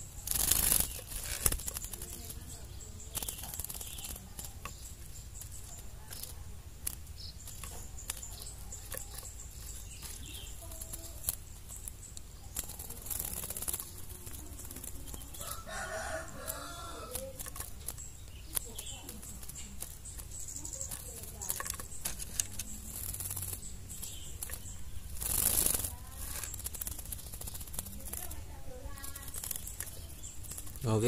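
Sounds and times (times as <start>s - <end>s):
bird feathers rustling and fluttering: 0.0s - 31.0s
low outdoor hum: 0.0s - 31.0s
rooster crowing: 15.4s - 17.3s.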